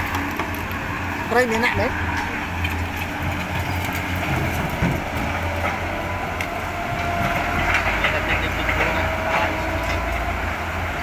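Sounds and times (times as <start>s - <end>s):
excavator diesel engine rumbling: 0.0s - 11.0s
knocks of rock and soil: 2.1s - 10.2s.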